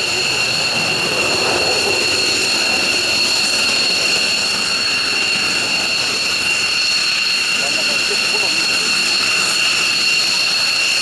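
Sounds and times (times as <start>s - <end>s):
jet engines idling with whine: 0.0s - 11.0s.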